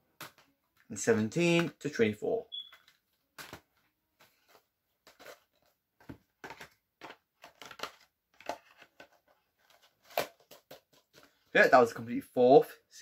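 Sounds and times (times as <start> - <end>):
plastic case clicks and rustles: 5.1 - 11.4.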